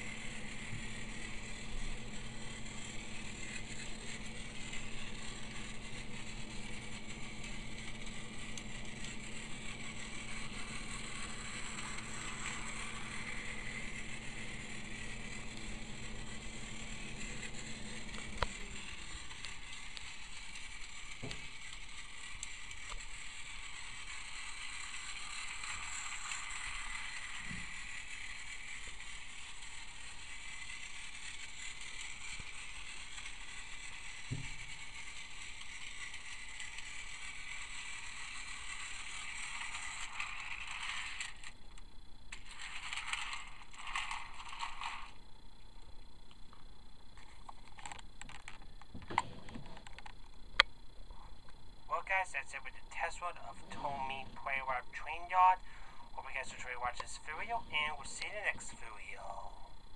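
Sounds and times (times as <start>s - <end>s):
toy train motor whirring: 0.0s - 45.3s, 47.1s - 50.7s, 51.9s - 59.9s
low hum: 0.0s - 59.9s.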